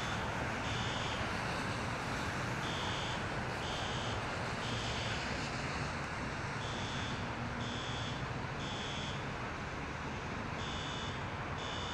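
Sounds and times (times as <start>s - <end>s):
electronic alarm beeps: 10.6s - 11.9s.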